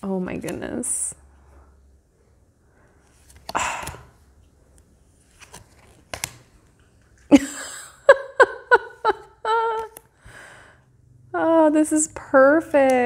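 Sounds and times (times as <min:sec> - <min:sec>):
cards sliding and rustling: 0:02.9 - 0:07.3
woman chuckling: 0:07.3 - 0:10.0.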